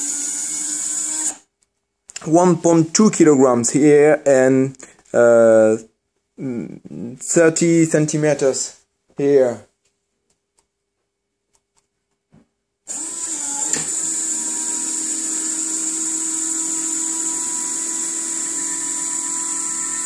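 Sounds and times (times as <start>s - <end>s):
electric motor whining: 12.9s - 20.0s.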